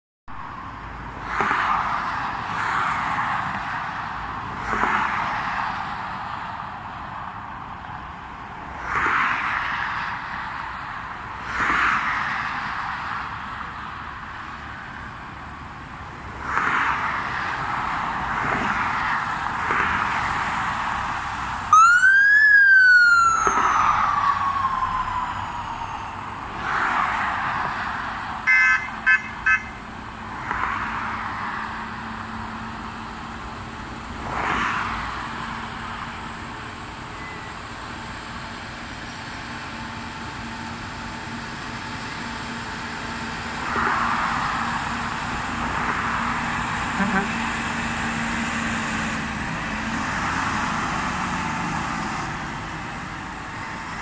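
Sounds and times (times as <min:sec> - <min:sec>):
passing road traffic: 0:00.3 - 0:54.0
siren: 0:21.7 - 0:26.5, 0:28.5 - 0:29.8, 0:47.0 - 0:47.4
horn toots: 0:46.9 - 0:47.5.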